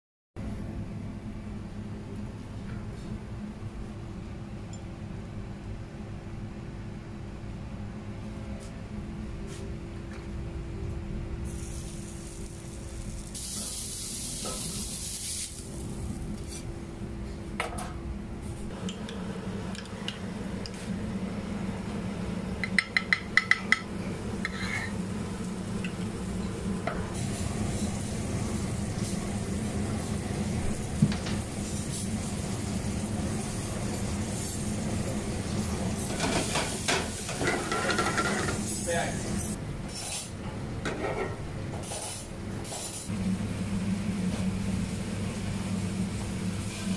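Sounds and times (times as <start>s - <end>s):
hot cookware hissing and sizzling: 11.4s - 16.7s, 18.7s - 46.9s.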